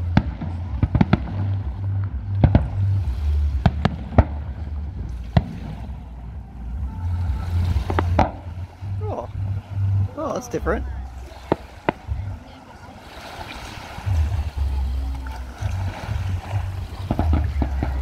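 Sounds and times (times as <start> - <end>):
fireworks bursting: 0.0 - 6.7, 16.3 - 18.0
wind on microphone: 0.0 - 18.0.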